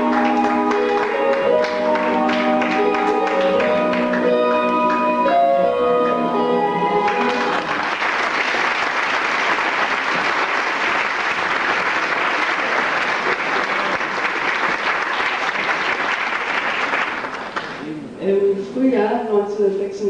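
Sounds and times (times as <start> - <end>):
crowd applause: 0.0 - 5.1, 7.0 - 17.8
ballroom dance music: 0.0 - 15.8.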